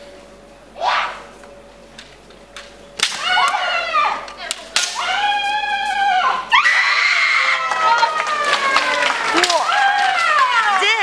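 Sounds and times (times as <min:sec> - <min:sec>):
bamboo sword strike cracking: 0:03.0 - 0:03.7, 0:04.5 - 0:05.3
fighters shouting: 0:03.1 - 0:11.0.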